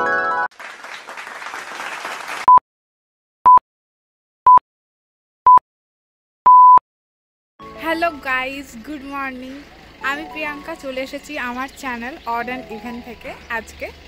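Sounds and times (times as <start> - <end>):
applause-like noise: 0.4 - 2.6.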